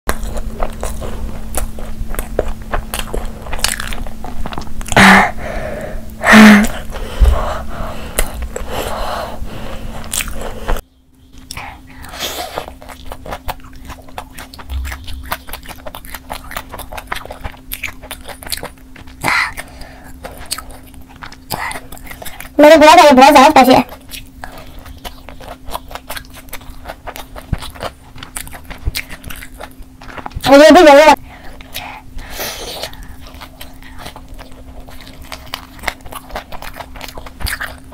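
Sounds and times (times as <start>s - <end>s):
crunchy biting and chewing: 0.1s - 5.4s, 6.1s - 10.8s, 11.4s - 22.6s, 23.9s - 30.5s, 31.3s - 37.9s
background hum: 0.1s - 37.9s.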